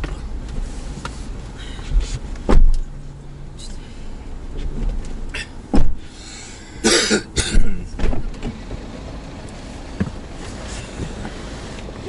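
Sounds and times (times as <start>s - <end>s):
heavy thump: 2.5s - 2.8s, 5.7s - 6.1s, 7.6s - 8.5s.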